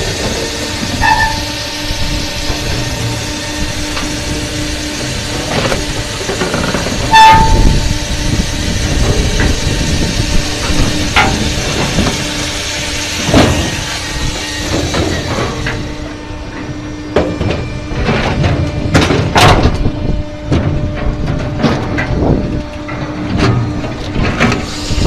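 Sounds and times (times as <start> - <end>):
machine drone: 0.0 - 25.0
loud high squeal: 0.8 - 5.0, 6.5 - 11.4.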